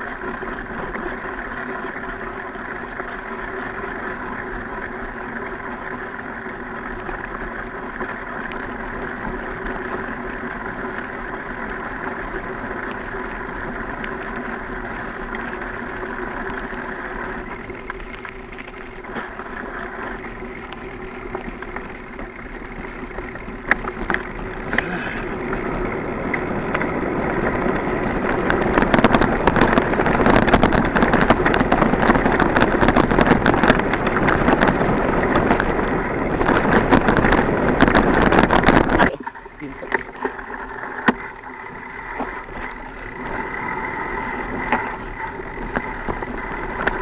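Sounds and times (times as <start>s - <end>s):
bicycle rattling on dirt trail: 0.0s - 47.0s
wind rushing over microphone: 24.5s - 47.0s.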